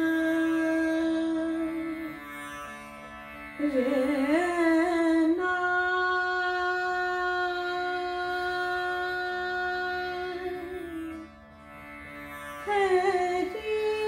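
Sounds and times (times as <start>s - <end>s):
tanpura drone: 0.0s - 14.0s.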